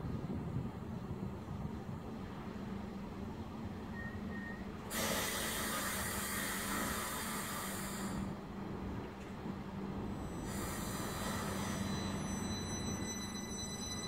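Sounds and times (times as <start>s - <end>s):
train electrical hum: 0.0s - 14.0s
loud air hissing: 4.8s - 8.4s, 10.4s - 12.2s
thin high whines: 10.1s - 14.0s.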